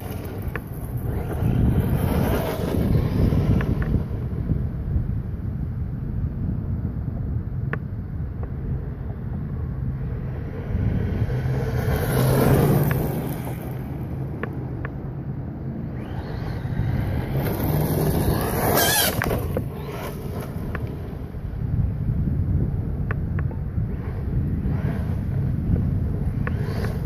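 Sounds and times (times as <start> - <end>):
rc truck motor whining: 0.0 - 4.4, 10.4 - 14.5, 15.7 - 21.7, 23.1 - 27.0
wind noise on microphone: 0.0 - 27.0.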